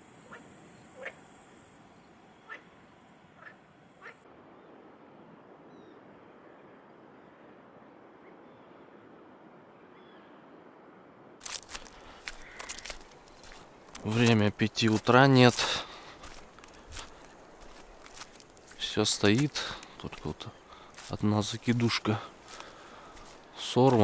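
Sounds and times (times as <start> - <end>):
crickets chirring: 0.0 - 4.1.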